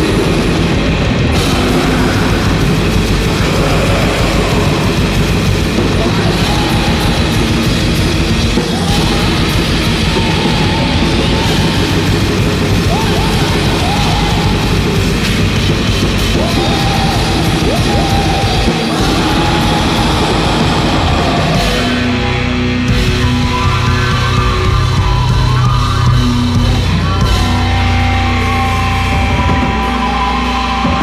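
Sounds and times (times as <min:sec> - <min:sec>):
black metal music: 0:00.0 - 0:31.0
gliding guitar lines: 0:01.3 - 0:07.3.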